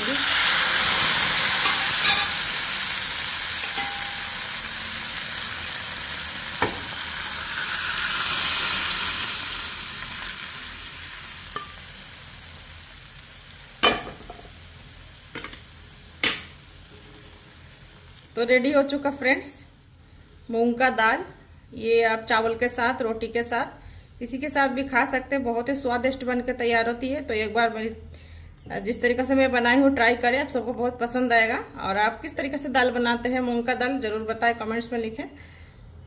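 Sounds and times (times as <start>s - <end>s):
dal sizzling in hot oil: 0.0s - 18.8s.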